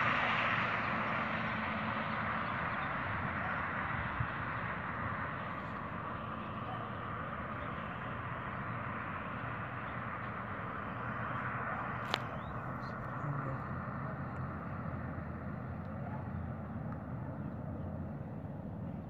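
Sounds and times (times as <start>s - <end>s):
cars driving on street: 0.0s - 19.0s.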